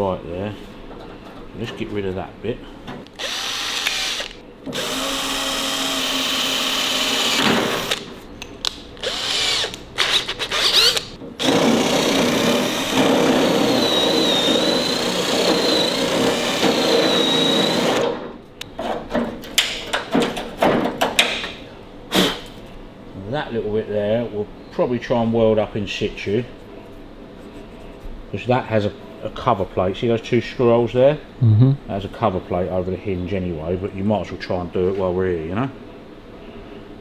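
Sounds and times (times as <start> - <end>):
cordless drill boring into sheet steel: 3.2 - 8.1, 9.0 - 18.1
drill bit squealing in metal: 9.0 - 11.2.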